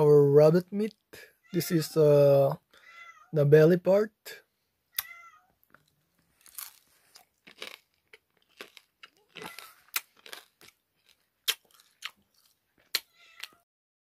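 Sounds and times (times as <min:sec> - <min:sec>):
person chewing crunchy food: 0:05.7 - 0:13.6.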